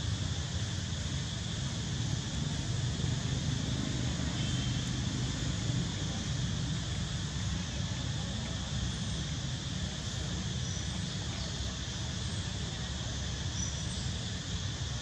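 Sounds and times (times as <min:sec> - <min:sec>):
high insect drone: 0:00.0 - 0:15.0.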